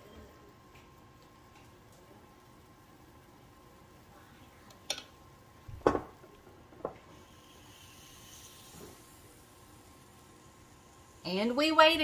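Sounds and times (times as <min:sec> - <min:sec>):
batter sizzling: 0:00.0 - 0:12.0
small knock: 0:05.8 - 0:06.1.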